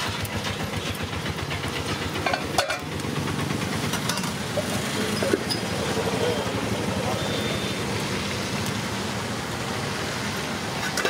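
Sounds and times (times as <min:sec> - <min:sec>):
gas stove burners hissing: 0:00.0 - 0:11.0
cookware clinking: 0:02.3 - 0:02.9.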